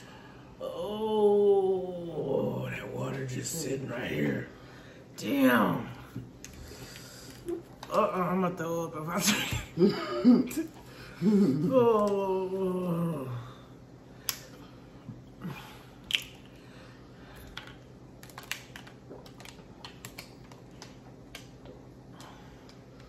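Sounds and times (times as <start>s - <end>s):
person's voice: 0.6s - 4.6s, 5.2s - 6.1s, 7.5s - 9.9s.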